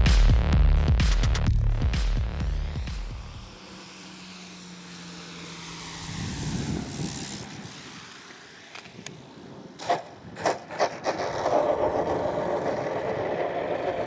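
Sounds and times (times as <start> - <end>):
rc plane motor hum: 3.2 - 14.0
wheels rolling on asphalt: 3.6 - 14.0.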